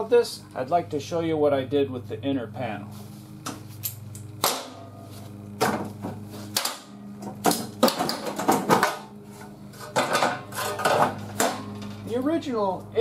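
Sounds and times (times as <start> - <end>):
steady low hum: 0.0 - 13.0
sheet metal clanking and scraping: 9.7 - 12.0.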